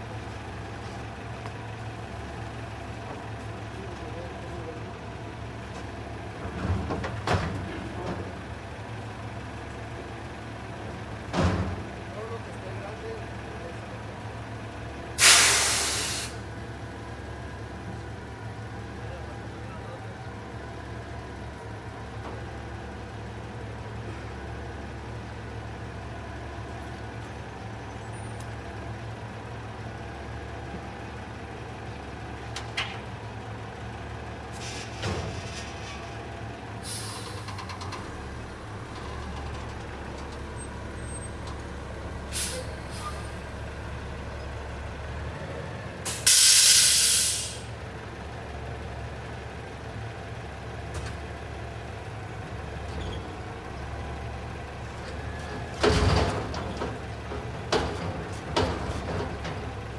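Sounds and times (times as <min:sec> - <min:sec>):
garbage truck engine idling: 0:00.0 - 0:59.9
air brake hiss: 0:15.2 - 0:16.4, 0:36.8 - 0:37.5, 0:42.3 - 0:43.3, 0:46.1 - 0:47.7.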